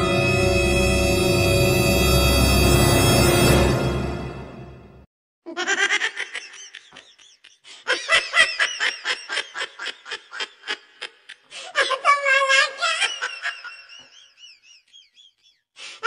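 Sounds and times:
music: 0.0s - 5.1s
high-pitched comic laughing: 5.5s - 15.4s.

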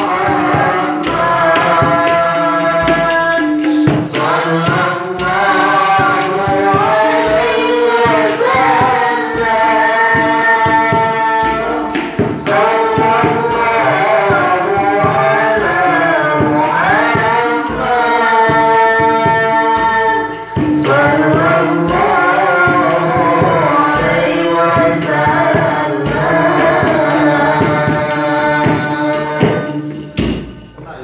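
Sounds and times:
woman singing devotional song: 0.0s - 30.7s
man singing devotional song: 0.0s - 31.0s
percussion beat: 0.0s - 31.0s.

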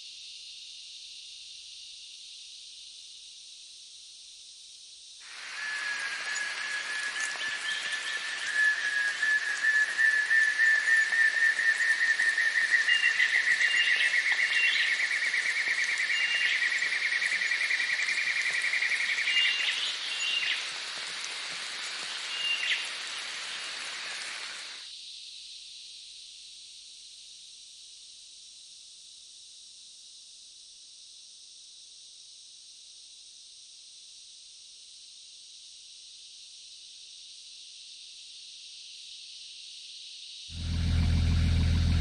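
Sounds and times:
insects hissing: 0.0s - 31.3s, 34.1s - 42.0s
short whistled chirps: 5.5s - 14.1s.

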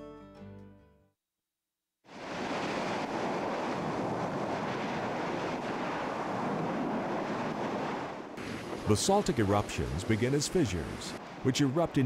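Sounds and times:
lava fountain roaring: 2.2s - 11.2s.

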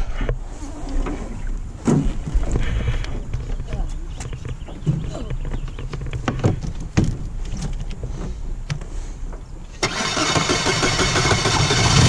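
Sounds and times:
outboard motor running: 9.8s - 12.0s.

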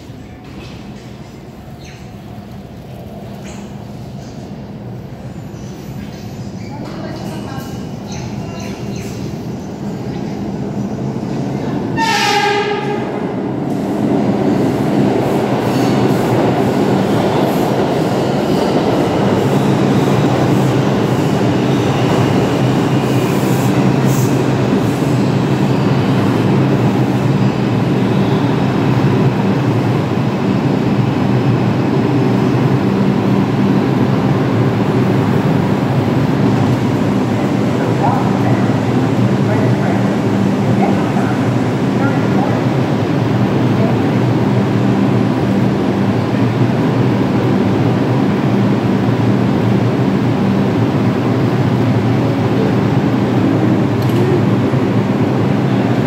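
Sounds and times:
train horn blast: 12.0s - 13.1s.

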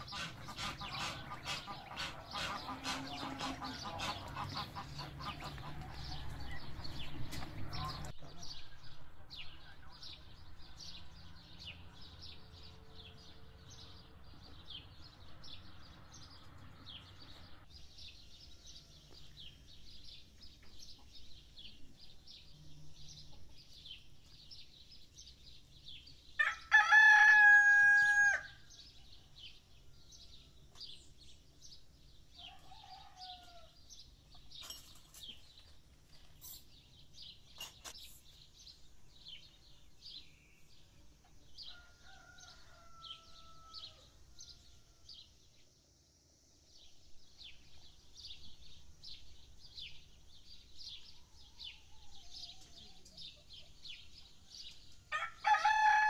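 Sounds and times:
small birds chirping: 0.0s - 26.7s, 28.1s - 56.0s
rooster crowing: 26.4s - 28.6s, 32.4s - 33.8s, 41.6s - 45.0s, 55.1s - 56.0s.

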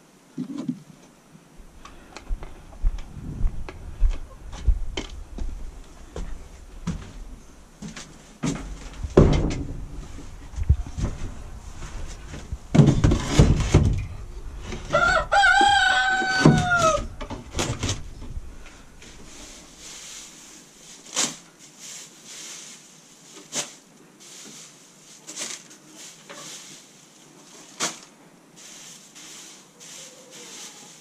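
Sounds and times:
wooden boxes knocking and scraping: 7.9s - 11.3s, 12.1s - 15.0s, 15.6s - 18.3s
rooster crowing: 14.9s - 17.2s.

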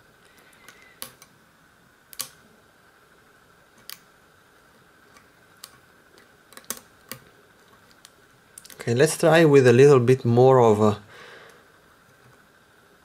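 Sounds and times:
lock pick metallic clicks: 2.1s - 2.4s.

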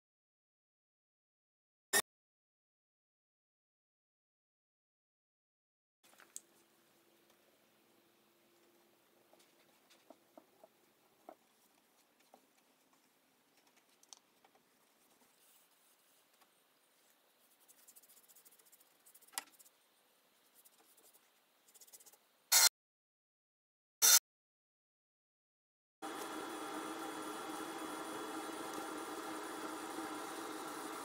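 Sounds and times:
paintbrush scratching on wood: 17.3s - 19.8s, 20.4s - 22.2s.

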